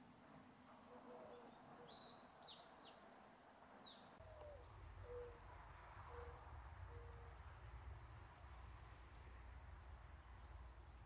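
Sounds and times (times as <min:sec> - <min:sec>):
mourning dove coo: 0:00.9 - 0:02.0, 0:04.2 - 0:05.5, 0:06.1 - 0:07.4.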